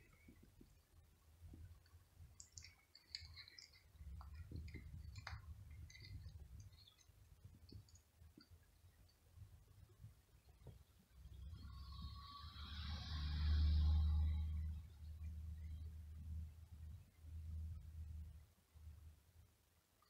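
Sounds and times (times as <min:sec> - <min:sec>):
cat chewing a dry stick: 0:00.0 - 0:09.5.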